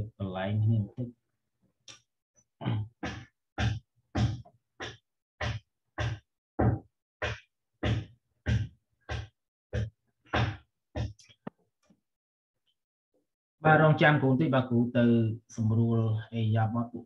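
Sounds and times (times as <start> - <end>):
sharp knocks: 3.0 - 11.2.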